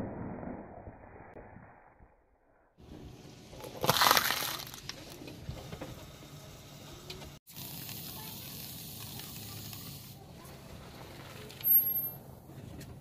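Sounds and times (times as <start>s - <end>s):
tyre crushing pepper: 3.6s - 5.0s
small cracks: 3.6s - 5.1s.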